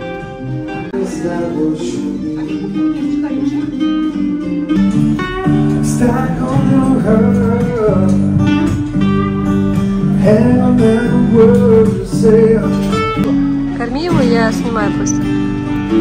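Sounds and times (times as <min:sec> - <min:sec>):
acoustic guitar strummed chords: 0:00.0 - 0:16.0
man singing into microphone: 0:00.8 - 0:04.5, 0:05.6 - 0:09.0, 0:10.0 - 0:13.2.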